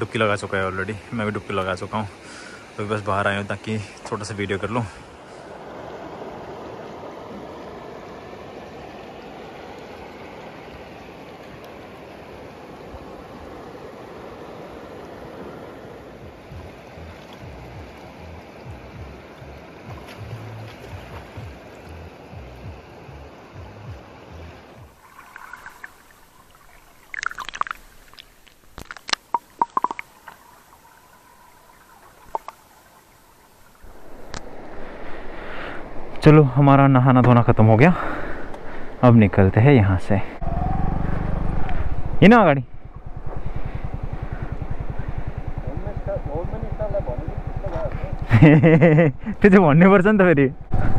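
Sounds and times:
river water rushing over stones: 0.0s - 39.9s
sharp swimming splashes: 24.9s - 33.9s.

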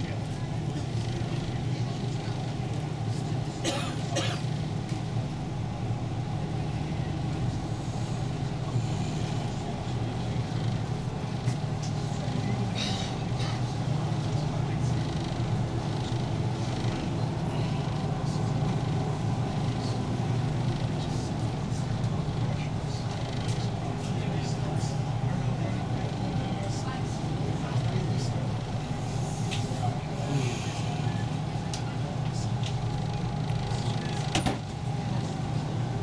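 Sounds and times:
boat engine droning: 0.0s - 36.0s.

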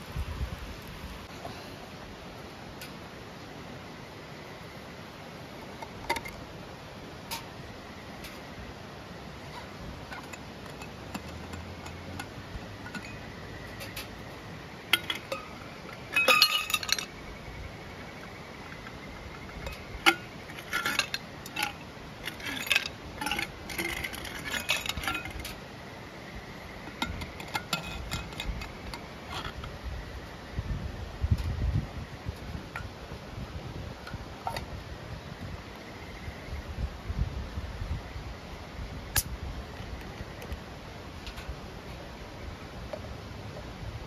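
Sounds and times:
stream murmuring: 0.0s - 44.0s
tableware clinking: 15.0s - 17.1s.

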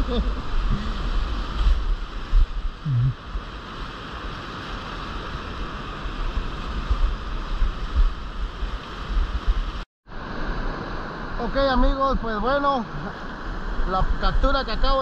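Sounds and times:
wind buffeting microphone: 0.0s - 9.8s
whitewater rushing and roaring: 0.0s - 15.0s.

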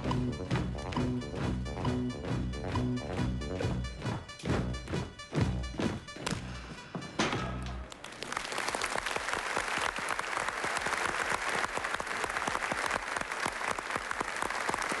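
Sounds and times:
studio audience applauding: 7.9s - 15.0s.

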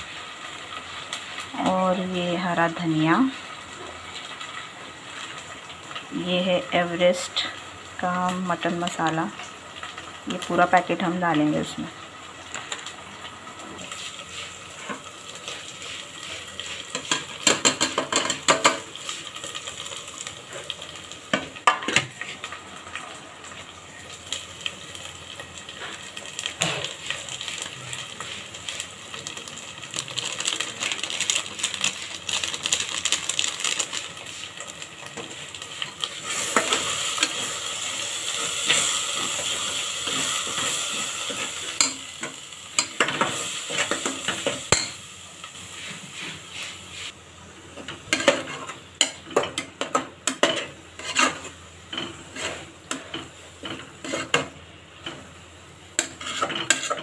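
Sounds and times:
masala sizzling in oil: 0.0s - 57.0s
metal spoon scraping a pot: 50.2s - 53.0s, 54.0s - 54.4s, 56.0s - 57.0s.

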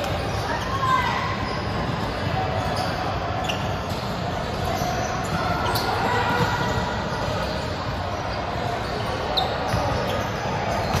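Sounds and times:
high shoe squeaks: 0.0s - 11.0s
balls being hit and bounced: 3.9s - 8.0s, 8.6s - 11.0s.

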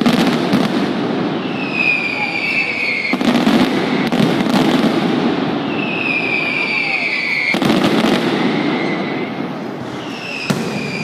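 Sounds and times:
firecrackers rattling bangs: 0.0s - 11.0s
firework falling whistle: 1.4s - 4.8s, 5.5s - 11.0s
sharp firecracker cracks: 10.1s - 11.0s.

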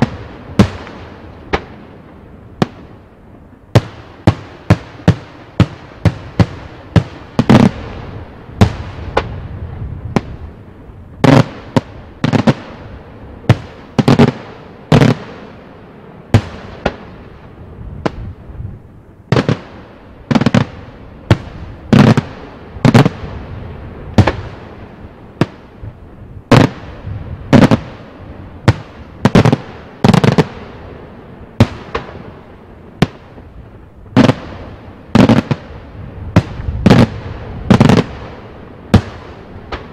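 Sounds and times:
fireworks bursting with echo: 0.0s - 39.9s.

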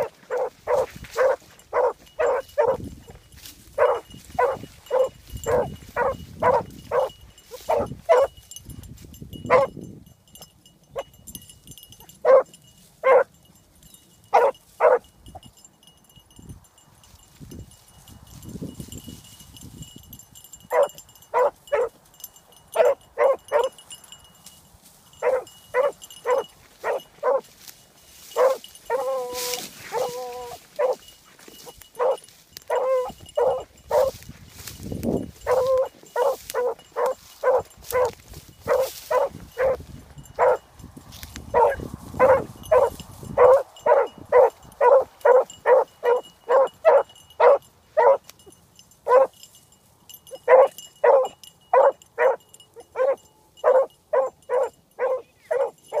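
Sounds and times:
dog baying and barking: 0.0s - 2.8s, 3.7s - 8.4s, 9.5s - 9.8s, 12.2s - 13.3s, 14.3s - 15.0s, 20.7s - 22.0s, 22.7s - 23.8s, 25.2s - 27.6s, 28.3s - 34.2s, 35.4s - 40.7s, 41.5s - 48.3s, 49.1s - 49.4s, 50.3s - 56.0s.

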